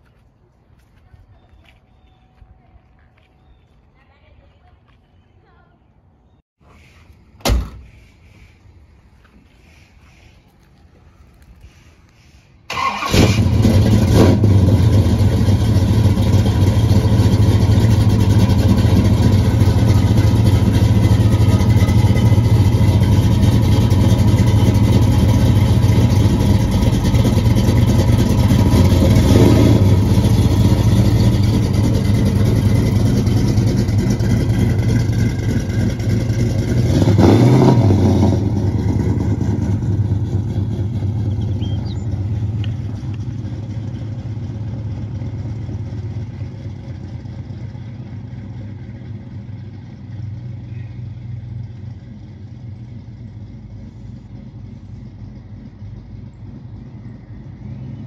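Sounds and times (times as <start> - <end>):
car engine starting and idling: 12.6 - 58.0
car engine revving: 12.7 - 47.4.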